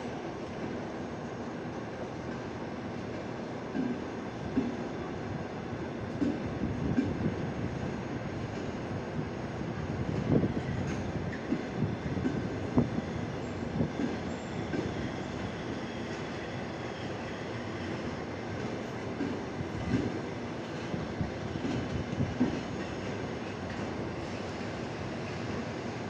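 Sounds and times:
train coaches rumbling past: 0.0s - 26.0s
wheels knocking on rail joints: 21.5s - 24.0s.

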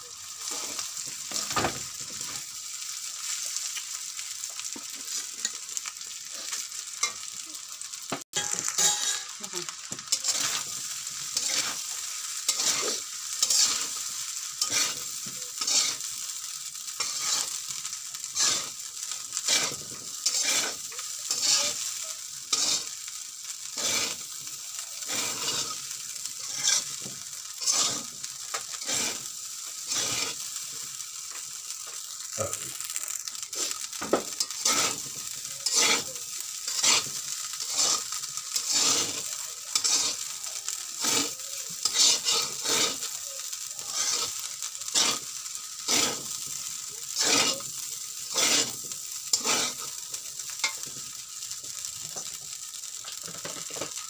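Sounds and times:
metal spatula scraping wok: 0.4s - 2.4s, 8.4s - 16.1s, 17.0s - 23.0s, 23.7s - 24.3s, 25.0s - 30.5s, 33.3s - 43.2s, 43.8s - 50.0s, 50.6s - 51.0s.

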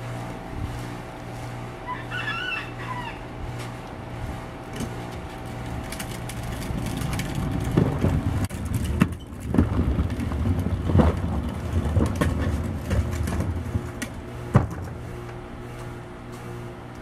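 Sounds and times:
trash cart wheels rumbling on concrete: 3.3s - 16.6s
sharp knocks and clatters: 5.8s - 15.0s.

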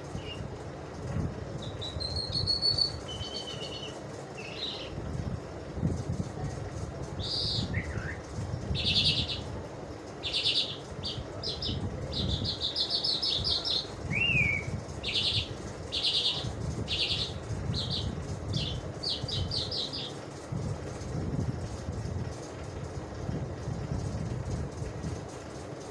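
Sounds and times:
lark chirping and trilling: 8.8s - 9.5s, 10.2s - 20.2s
bird whistle: 14.1s - 15.4s.

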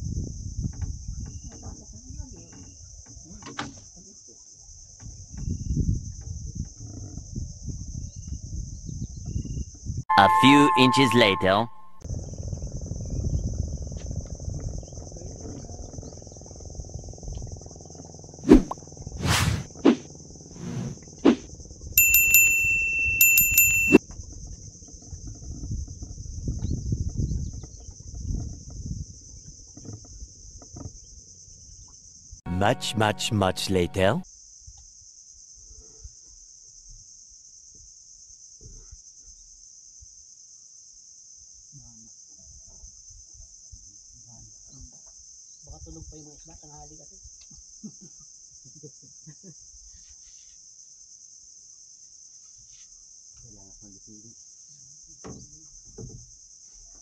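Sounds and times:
bell ringing in rapid pulses: 10.1s - 12.0s, 22.0s - 24.0s.

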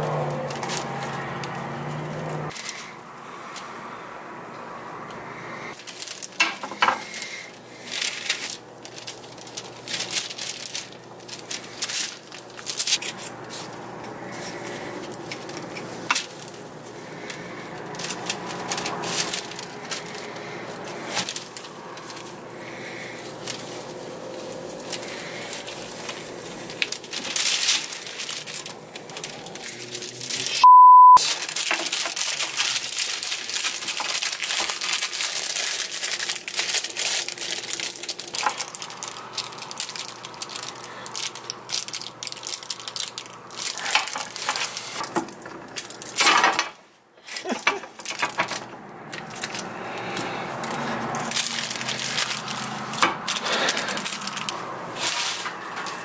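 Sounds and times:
plastic wrap crinkling: 0.0s - 3.0s, 5.7s - 30.6s, 31.2s - 56.0s
censor bleep: 30.6s - 31.2s
metal parts clicking: 38.3s - 46.8s, 47.4s - 56.0s.

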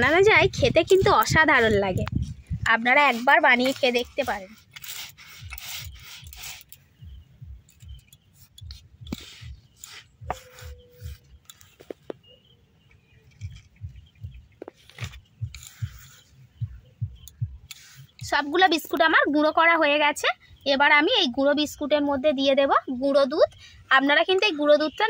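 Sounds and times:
gritty scraping on stone: 0.9s - 6.9s, 7.7s - 12.1s
stone roller rubbing on stone: 2.7s - 6.8s, 7.8s - 12.0s.

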